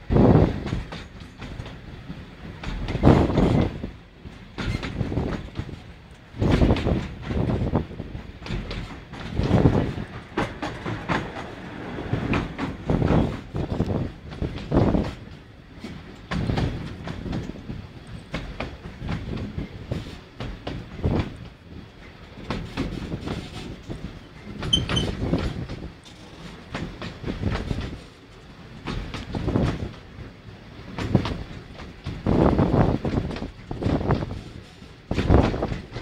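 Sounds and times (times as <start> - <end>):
train carriage rattling: 0.0 - 36.0
wheels clacking over rail joints: 2.6 - 21.4, 22.4 - 30.1, 30.9 - 36.0.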